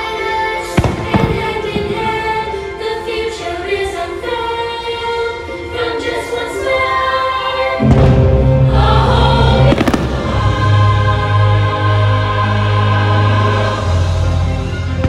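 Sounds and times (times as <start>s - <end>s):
choir singing: 0.0s - 15.0s
orchestral music: 0.0s - 15.0s
deep bass: 7.8s - 15.0s.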